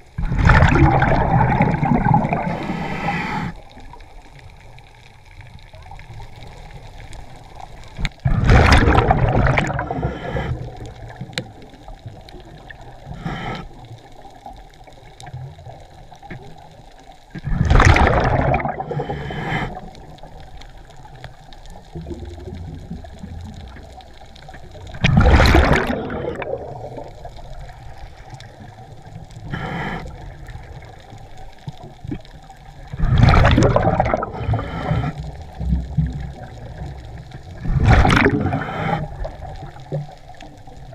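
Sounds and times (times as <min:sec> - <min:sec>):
exhaled bubbles rushing: 0:00.0 - 0:04.0, 0:05.6 - 0:13.1, 0:17.4 - 0:40.9
scuba regulator breathing underwater: 0:00.2 - 0:03.8, 0:08.2 - 0:11.3, 0:12.7 - 0:14.3, 0:17.4 - 0:20.4, 0:22.7 - 0:31.3, 0:32.9 - 0:39.8.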